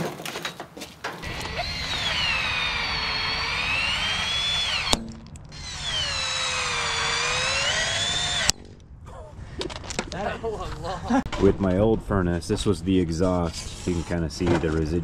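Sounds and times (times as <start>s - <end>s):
oscillating multi-tool cutting plastic pipe: 1.2s - 8.6s.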